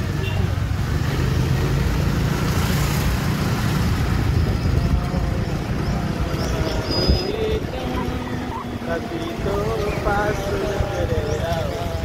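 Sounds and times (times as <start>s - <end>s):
wind buffeting microphone: 3.9s - 12.0s.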